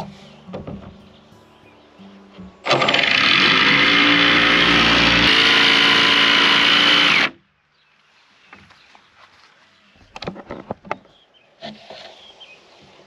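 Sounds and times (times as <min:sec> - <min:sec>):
power saw cutting plywood: 0:02.7 - 0:07.4.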